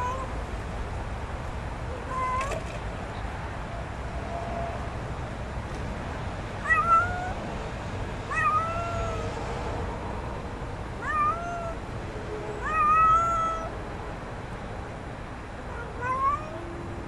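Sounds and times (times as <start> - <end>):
kitten meowing: 2.0 - 2.7, 6.6 - 7.4, 11.0 - 11.8, 12.6 - 13.7.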